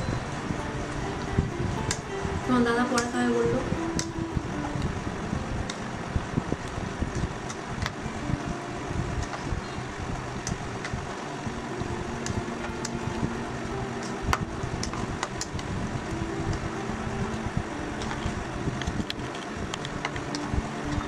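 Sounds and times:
low hum: 0:00.0 - 0:21.0.

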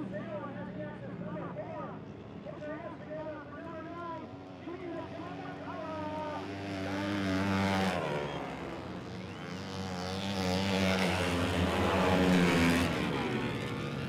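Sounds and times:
motorcycle engines revving past: 0:04.4 - 0:14.0.

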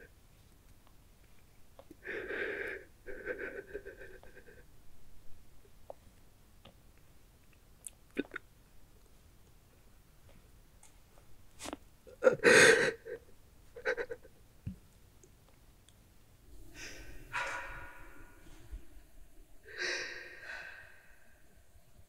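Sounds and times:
person breathing heavily and sighing: 0:02.0 - 0:04.7, 0:12.1 - 0:14.2, 0:16.5 - 0:21.9.

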